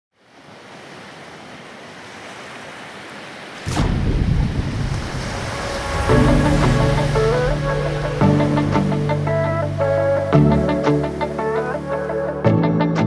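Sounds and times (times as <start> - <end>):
rushing water-like noise: 0.2 - 12.4
deep rumble: 3.7 - 10.0
falling whoosh: 3.7 - 10.4
music with held notes: 6.1 - 13.0.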